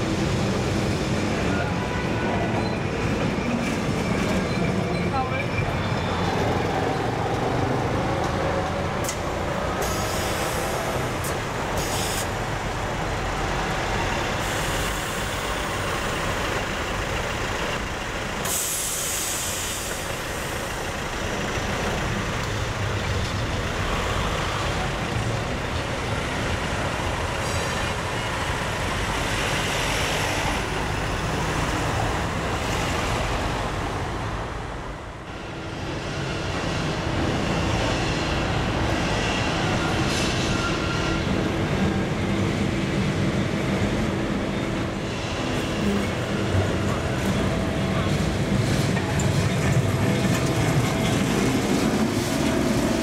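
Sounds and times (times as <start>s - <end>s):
city traffic: 0.0s - 53.0s
trams running on rails: 0.0s - 53.0s
loud hiss: 18.4s - 20.7s.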